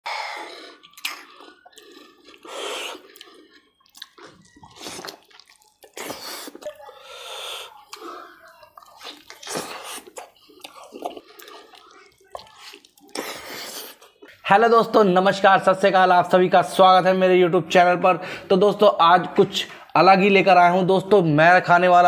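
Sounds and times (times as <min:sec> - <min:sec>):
mouth smacks and clicks: 0:00.1 - 0:14.4
wet chewing and squelching: 0:00.1 - 0:14.4.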